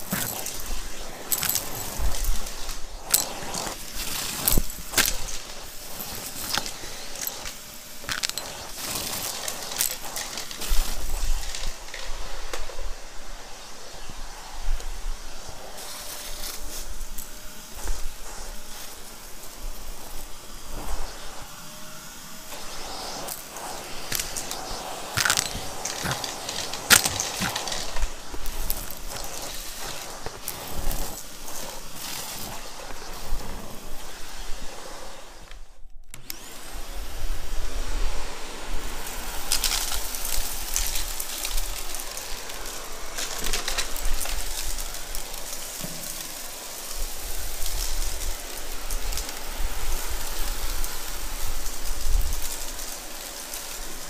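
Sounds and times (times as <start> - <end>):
debris rattling in vacuum: 0.0 - 13.1, 15.5 - 34.2, 38.4 - 54.0
vacuum cleaner hissing: 0.0 - 54.0.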